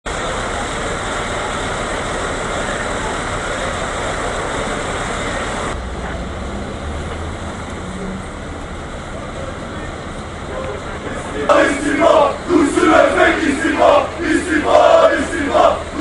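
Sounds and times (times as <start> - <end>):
low engine hum: 0.1 - 16.0
vehicle rushing hiss: 11.0 - 16.0.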